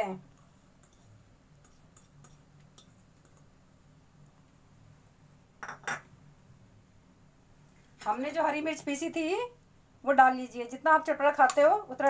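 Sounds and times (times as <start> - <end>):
low steady hum: 0.0 - 12.0
crockery clinking: 5.6 - 6.1.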